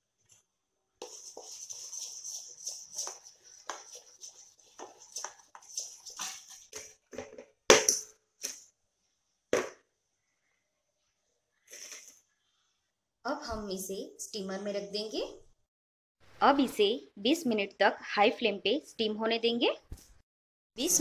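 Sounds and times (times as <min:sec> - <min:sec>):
spoon scraping a steel pot: 0:01.0 - 0:07.0.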